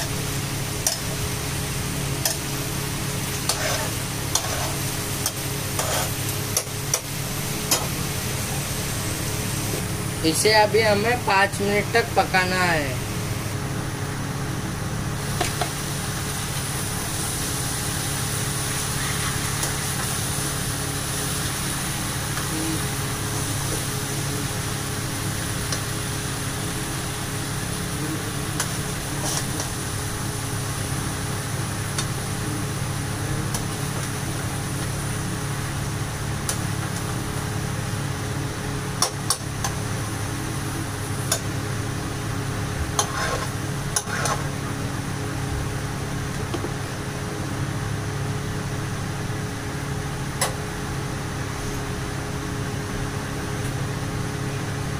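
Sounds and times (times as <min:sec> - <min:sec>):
food sizzling in a pan: 0:00.0 - 0:10.0, 0:15.1 - 0:44.8
steady low hum: 0:00.0 - 0:54.9.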